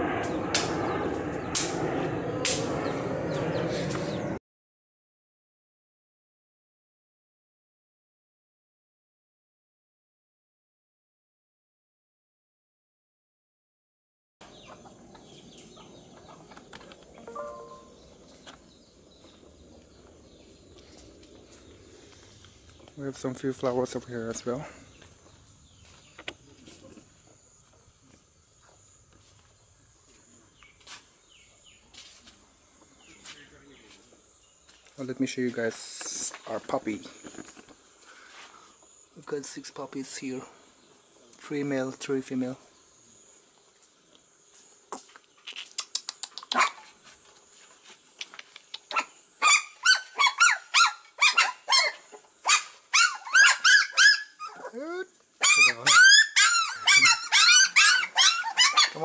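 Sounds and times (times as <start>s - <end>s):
bird chirps: 14.4s - 20.9s
insect buzz: 14.5s - 59.0s
sharp clicks: 45.5s - 46.8s
puppies yelping: 48.9s - 59.0s.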